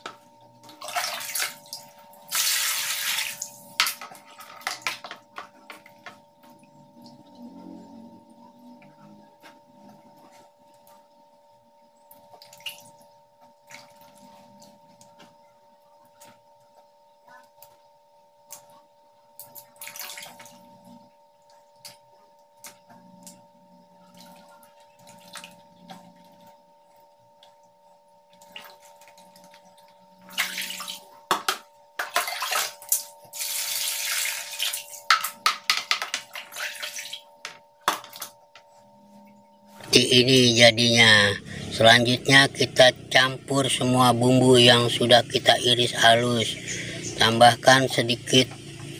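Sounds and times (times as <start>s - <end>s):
water sloshing and dripping: 0.0s - 7.8s, 12.0s - 15.4s, 19.4s - 38.7s.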